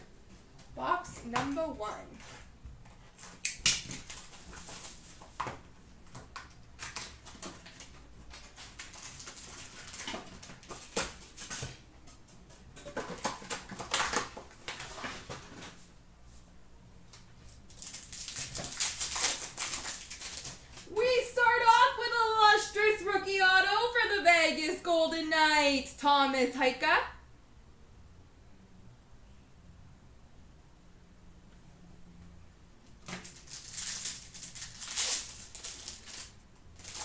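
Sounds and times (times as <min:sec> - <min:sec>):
cardboard rustling and scraping: 0:02.0 - 0:05.7, 0:06.8 - 0:16.5
foil wrapper tearing: 0:03.2 - 0:05.3, 0:06.3 - 0:11.7, 0:13.1 - 0:15.6, 0:17.6 - 0:20.9, 0:33.0 - 0:37.0.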